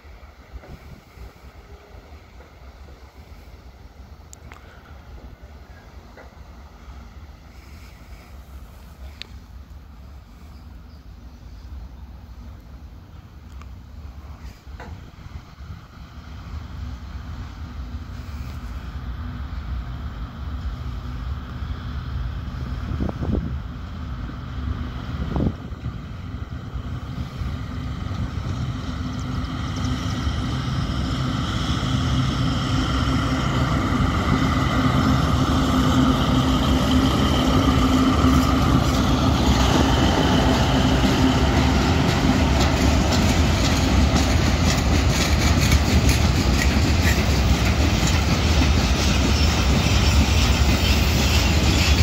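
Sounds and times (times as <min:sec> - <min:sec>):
diesel locomotive engines running: 0:00.0 - 0:52.0
freight wagon wheels clattering on rails: 0:41.6 - 0:52.0.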